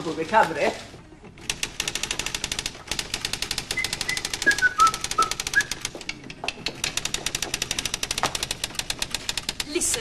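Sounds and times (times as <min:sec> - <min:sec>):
typewriter typing: 0:01.4 - 0:10.0.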